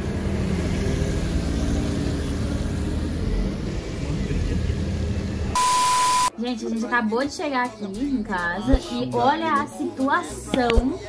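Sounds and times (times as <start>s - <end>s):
road and engine rumble: 0.0s - 6.3s
loud steady beep: 5.6s - 6.3s.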